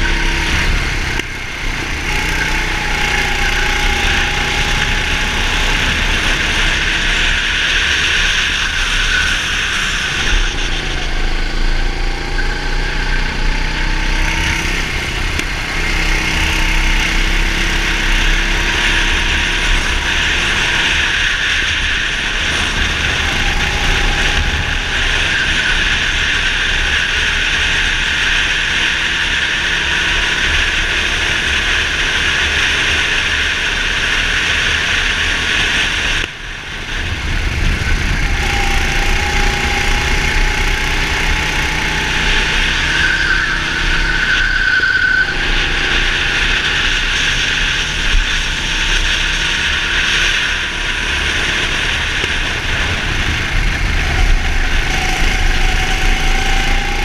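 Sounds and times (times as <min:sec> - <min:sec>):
go-kart engine racing: 0:00.0 - 0:57.0
wind noise on microphone: 0:32.4 - 0:44.1, 0:45.3 - 0:57.0.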